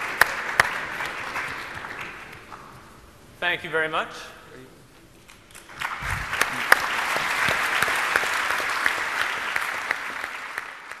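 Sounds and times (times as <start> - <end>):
audience applauding: 0.0 - 2.9, 5.5 - 11.0.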